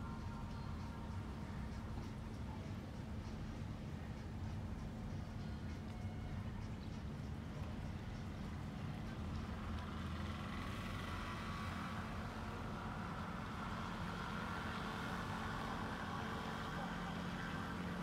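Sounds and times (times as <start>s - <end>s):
ship engines humming: 0.0s - 18.0s.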